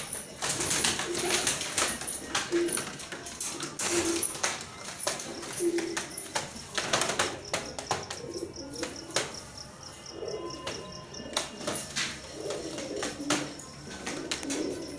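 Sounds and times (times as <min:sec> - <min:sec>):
clicks and knocks in wire cage: 0:00.0 - 0:08.2
pigeons cooing: 0:00.0 - 0:14.9.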